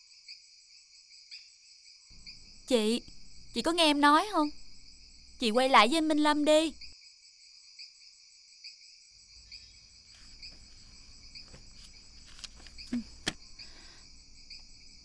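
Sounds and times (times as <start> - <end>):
crickets chirring: 0.0 - 15.0
soft rustles: 10.0 - 13.4.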